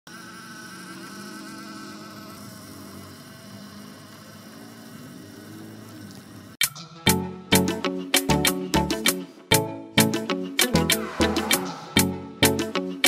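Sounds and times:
toy truck motor whining: 0:00.1 - 0:06.6.

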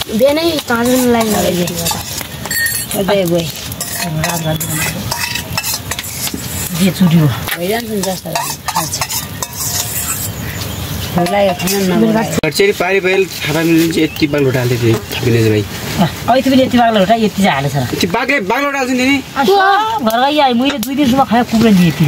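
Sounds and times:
food frying sizzle: 0:00.0 - 0:22.0
spoon scraping a pan: 0:00.6 - 0:12.0.

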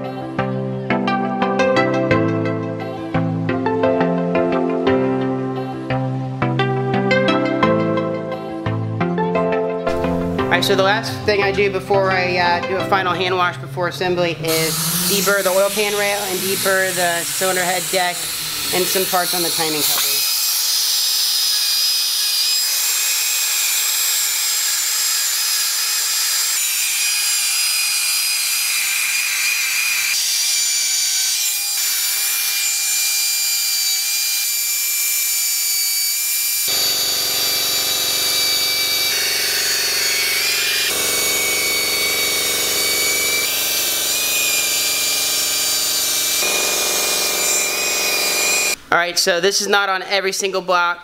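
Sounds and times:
rotary power tool whine: 0:14.4 - 0:48.8.

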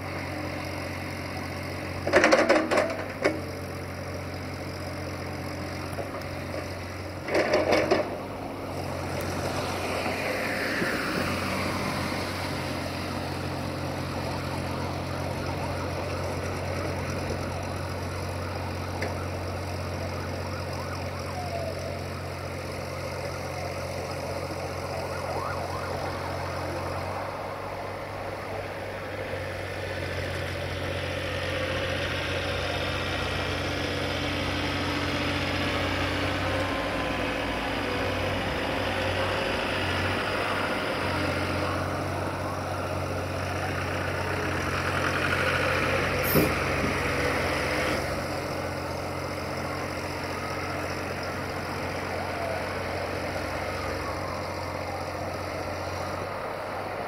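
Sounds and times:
excavator diesel engine running: 0:00.0 - 0:57.0
hydraulic whine: 0:46.0 - 0:48.2.

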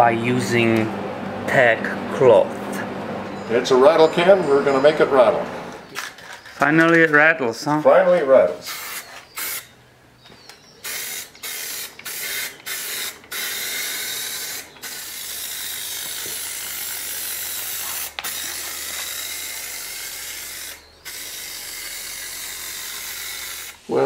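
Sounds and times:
spray paint hissing: 0:08.6 - 0:09.7, 0:10.8 - 0:24.0.

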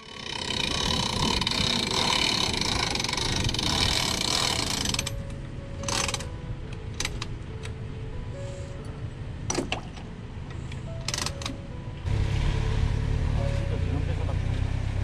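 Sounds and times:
winch ratcheting clicks: 0:00.0 - 0:05.2, 0:05.8 - 0:06.3, 0:11.0 - 0:11.6.

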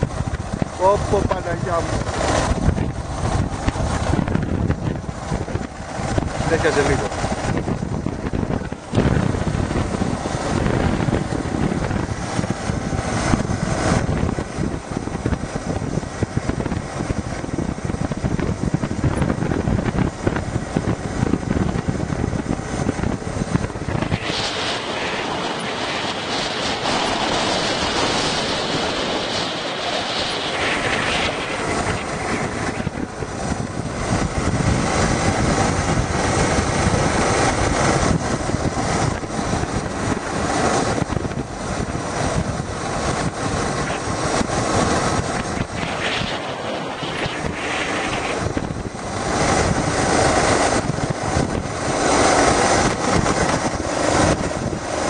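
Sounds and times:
vehicle engine and road rumble: 0:00.0 - 0:55.0
wind buffeting microphone: 0:00.0 - 0:55.0
higher hiss: 0:44.9 - 0:48.7.

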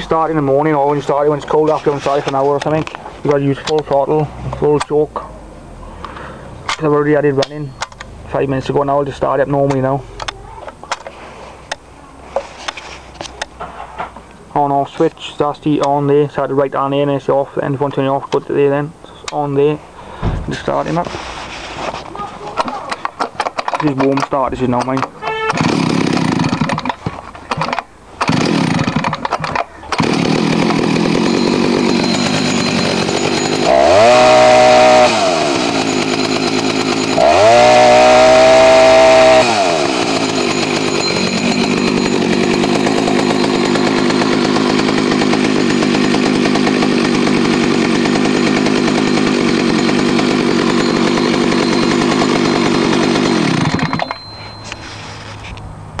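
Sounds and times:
chainsaw starting and revving: 0:00.0 - 0:03.0, 0:25.4 - 0:54.8.

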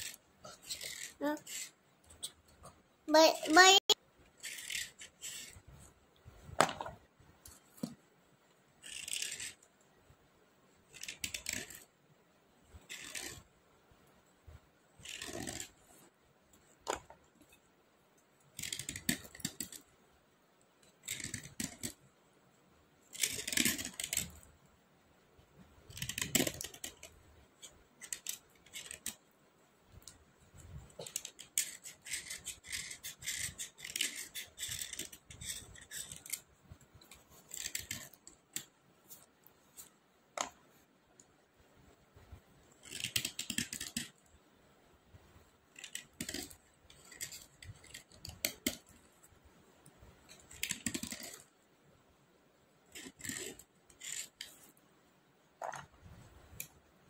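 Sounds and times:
stone pencils scraping together: 0:00.0 - 0:05.9, 0:08.8 - 0:09.7, 0:10.9 - 0:11.9, 0:12.7 - 0:13.5, 0:15.0 - 0:16.1, 0:18.6 - 0:19.9, 0:20.9 - 0:22.0, 0:23.1 - 0:24.5, 0:25.9 - 0:29.2, 0:30.0 - 0:40.5, 0:42.7 - 0:44.2, 0:45.7 - 0:49.1, 0:50.3 - 0:51.5, 0:52.9 - 0:54.8.

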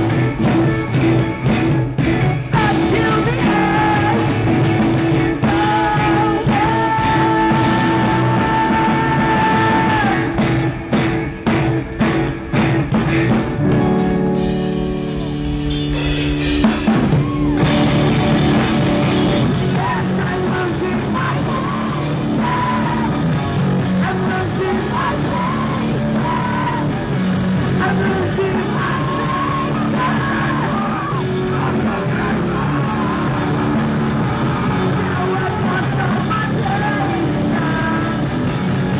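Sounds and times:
live rock band playing: 0:00.0 - 0:38.9
person singing lead: 0:02.5 - 0:10.4.

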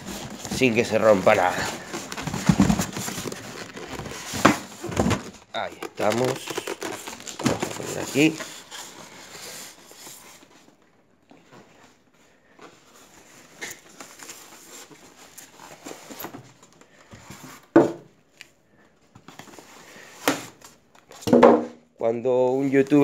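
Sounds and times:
packing wrap crinkling: 0:00.0 - 0:10.8.

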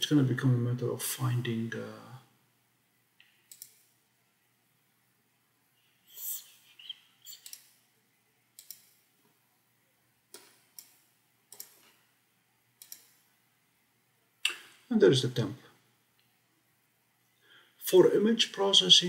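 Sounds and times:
mouse buttons clicking: 0:03.2 - 0:03.9, 0:06.4 - 0:07.8, 0:08.6 - 0:09.0, 0:10.3 - 0:12.0, 0:12.8 - 0:13.2.

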